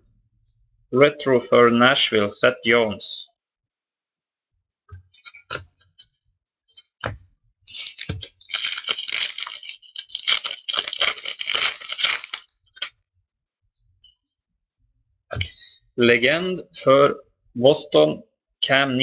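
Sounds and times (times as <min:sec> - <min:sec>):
wrapper crinkling and tearing: 0:07.7 - 0:12.9.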